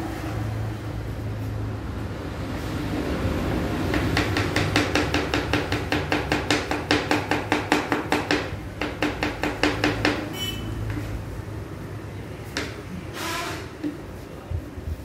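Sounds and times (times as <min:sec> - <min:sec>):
knife chopping vegetables: 0:03.8 - 0:11.2.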